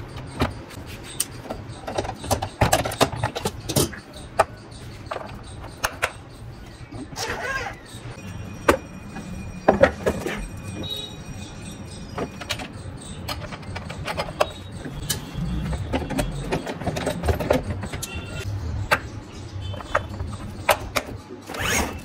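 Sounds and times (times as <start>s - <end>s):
plastic and metal parts clicking: 0.0s - 6.4s, 12.2s - 19.1s.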